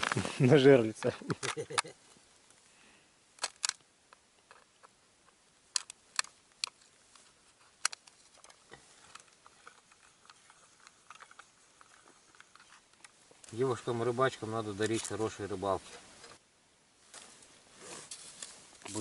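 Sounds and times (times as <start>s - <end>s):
light handling noises: 3.4s - 16.4s
sharp clicks: 5.7s - 6.8s.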